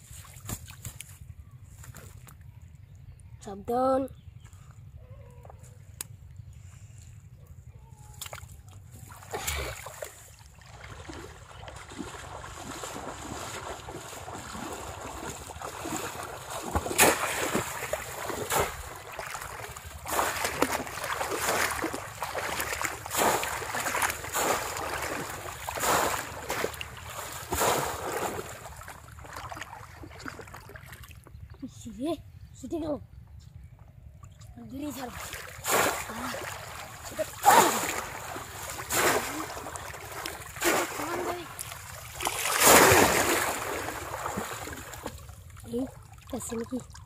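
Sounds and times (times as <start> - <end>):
shallow water splashing: 8.3 - 31.4, 34.8 - 47.0.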